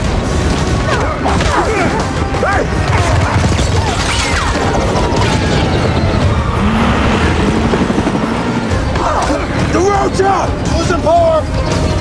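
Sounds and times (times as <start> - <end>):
film music score: 0.0 - 12.0.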